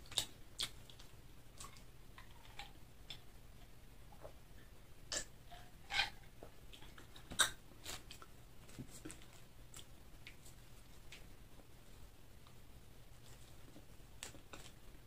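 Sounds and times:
person chewing: 0.0s - 2.7s.

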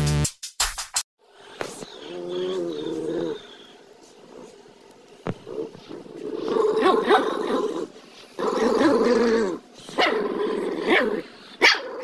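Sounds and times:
dogs growling: 2.1s - 4.6s, 5.3s - 12.0s.

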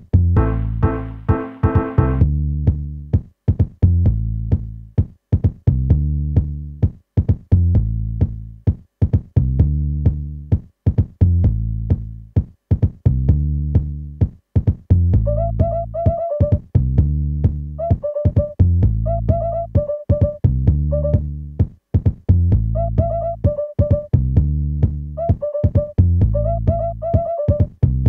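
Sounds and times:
drum-machine beat of ticks: 0.0s - 28.0s
deep bass notes: 0.1s - 3.1s, 3.8s - 5.0s, 5.7s - 6.8s, 7.5s - 8.6s, 9.4s - 10.5s, 11.2s - 12.3s, 13.1s - 14.2s, 14.9s - 16.0s, 16.8s - 17.8s, 18.6s - 19.8s, 20.5s - 21.6s, 22.3s - 23.4s, 24.2s - 25.2s, 26.0s - 27.0s
higher synth melody: 0.4s - 2.2s.

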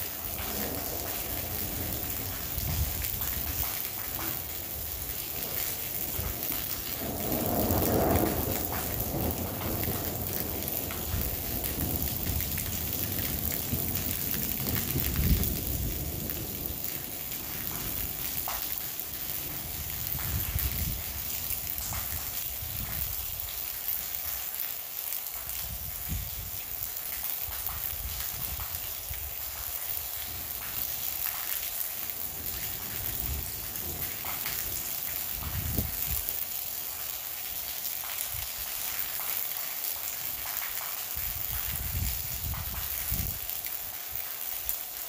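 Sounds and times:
thunder rumbling: 0.0s - 23.6s, 27.5s - 39.3s, 40.1s - 43.5s
heavy rain pouring: 0.0s - 45.0s.

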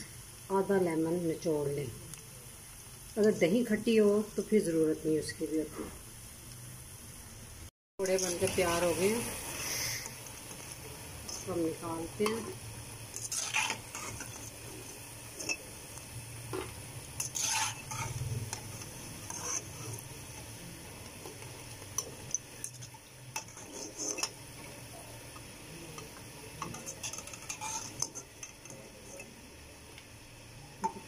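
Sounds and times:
frying in hot oil: 0.0s - 31.0s
metal spatula scraping pan: 8.0s - 9.9s, 10.5s - 15.7s, 16.5s - 20.1s, 22.0s - 24.4s, 26.6s - 29.3s.

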